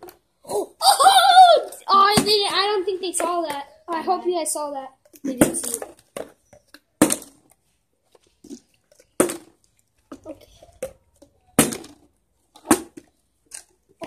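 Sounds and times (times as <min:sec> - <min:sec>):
plastic bottles thudding on table: 0:07.0 - 0:07.5, 0:09.2 - 0:13.1.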